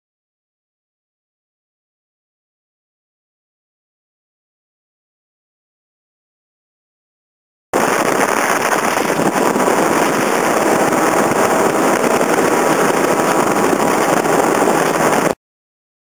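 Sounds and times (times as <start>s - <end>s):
speedboat engine: 7.8s - 15.4s
wind noise on microphone: 7.8s - 15.4s.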